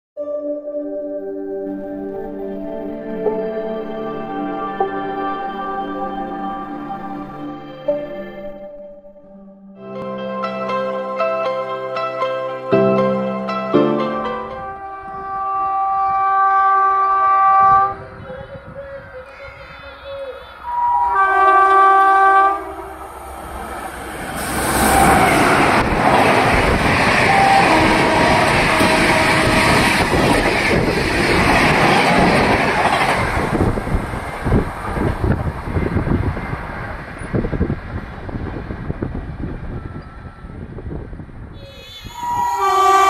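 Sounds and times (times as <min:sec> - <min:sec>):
train roaring past: 0:10.0 - 0:43.0
train horn blast: 0:13.9 - 0:18.5, 0:19.1 - 0:23.4, 0:27.0 - 0:30.3, 0:41.6 - 0:43.0.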